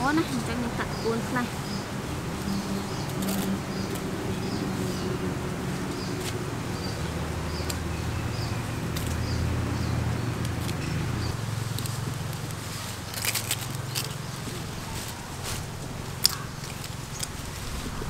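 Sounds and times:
steady low hum: 0.0 - 18.0
plant stems snapping: 3.1 - 4.1, 8.9 - 9.3, 11.7 - 18.0.

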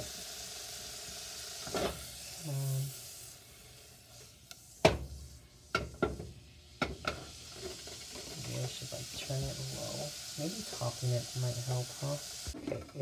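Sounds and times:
butter sizzling in pot: 0.0 - 13.0.

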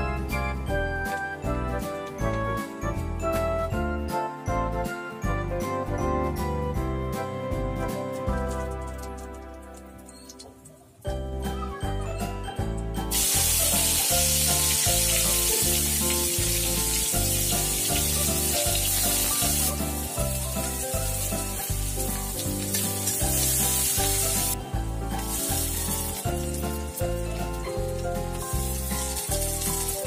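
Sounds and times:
background music with beat: 0.0 - 10.2, 11.1 - 30.0
onions sizzling in oil: 13.1 - 30.0.

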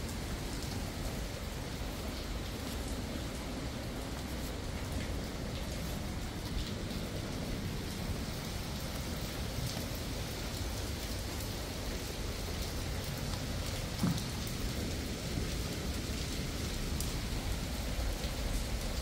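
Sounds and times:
steady rain hiss: 0.0 - 19.0
raindrop ticks: 0.1 - 19.0
low knock: 14.0 - 14.6.

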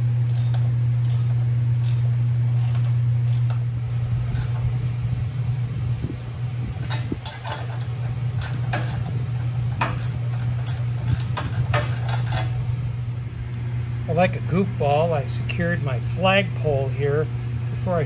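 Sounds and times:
steady low hum: 0.0 - 18.0
wrench clicking on metal nuts: 0.3 - 2.0, 2.6 - 3.6, 4.4 - 4.6, 7.2 - 9.1, 9.8 - 12.4.

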